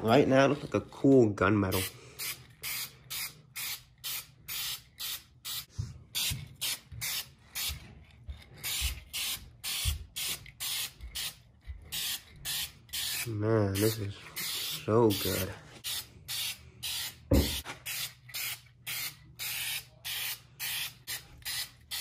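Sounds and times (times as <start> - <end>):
spray can hissing: 8.6 - 22.0.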